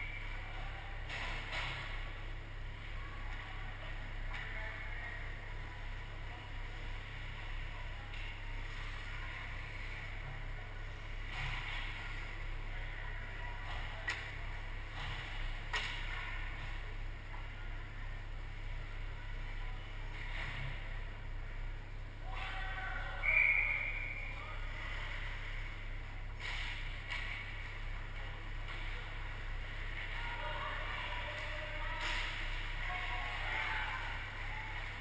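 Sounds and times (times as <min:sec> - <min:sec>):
faint voices: 0:00.0 - 0:35.0
steady low hum: 0:00.0 - 0:35.0
distant skating: 0:22.2 - 0:35.0.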